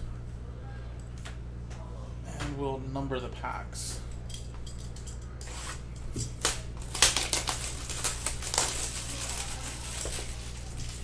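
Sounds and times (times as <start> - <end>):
shrink-wrap crinkling and tearing: 6.3 - 11.0.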